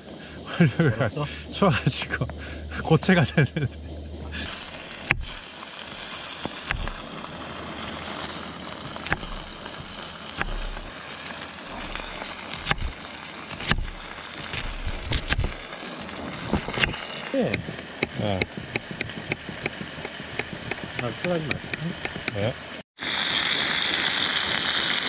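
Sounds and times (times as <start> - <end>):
steady hiss: 0.0 - 25.0
knife slicing onion: 4.5 - 5.4, 6.4 - 7.0, 9.0 - 11.0, 11.8 - 15.6, 16.7 - 22.4
blade knocking on cutting board: 6.7 - 7.0, 9.1 - 9.4, 10.4 - 10.9.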